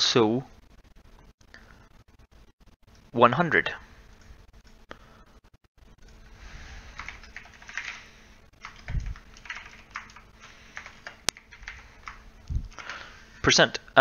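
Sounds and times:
computer keyboard typing: 0:06.0 - 0:13.1.

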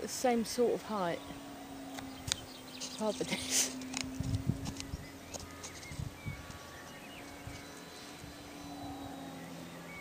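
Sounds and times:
model airplane motor drone: 0:00.0 - 0:10.0.

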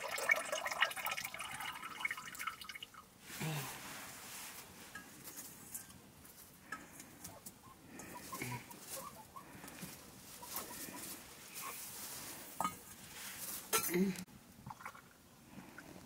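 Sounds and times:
steel bowls clinking: 0:04.8 - 0:06.0, 0:12.6 - 0:13.0.

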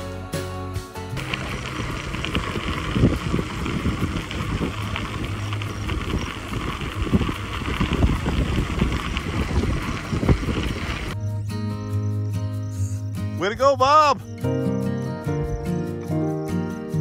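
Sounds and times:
tyres rolling on gravel: 0:01.2 - 0:11.2
wind buffeting microphone: 0:01.2 - 0:11.2.

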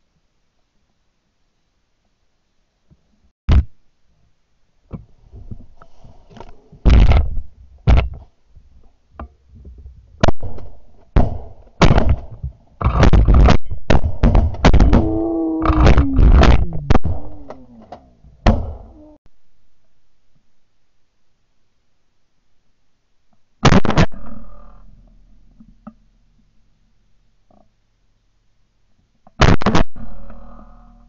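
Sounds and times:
shotgun blasts: 0:10.2 - 0:17.8.

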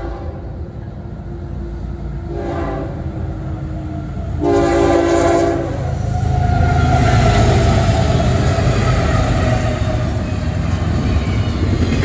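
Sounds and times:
locomotive air horn blasts: 0:00.0 - 0:00.5, 0:02.3 - 0:03.1, 0:04.4 - 0:06.0
diesel locomotive rumble: 0:00.0 - 0:12.0.

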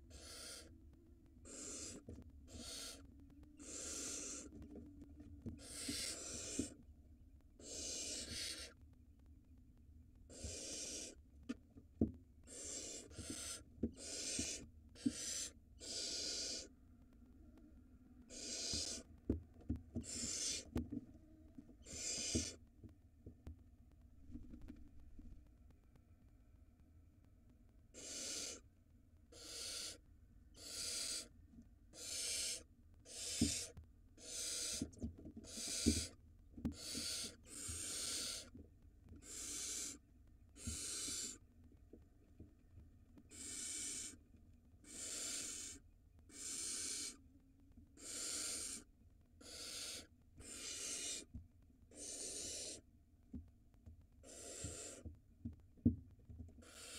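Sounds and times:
owl nestlings hissing calls: 0:00.1 - 0:00.7, 0:01.4 - 0:04.6, 0:05.6 - 0:06.8, 0:07.6 - 0:08.8, 0:10.3 - 0:11.2, 0:12.4 - 0:16.7, 0:18.3 - 0:19.1, 0:20.0 - 0:20.8, 0:21.8 - 0:22.6, 0:27.9 - 0:28.7, 0:29.3 - 0:38.6, 0:39.2 - 0:40.0, 0:40.6 - 0:41.5, 0:43.3 - 0:44.2, 0:44.8 - 0:47.2, 0:48.0 - 0:51.3, 0:51.9 - 0:52.8, 0:54.2 - 0:55.1, 0:56.6 - 0:56.9.

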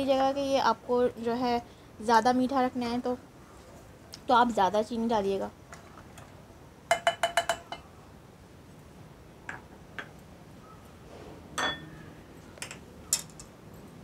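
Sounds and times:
spoon clinking on steel pot: 0:11.6 - 0:12.0.

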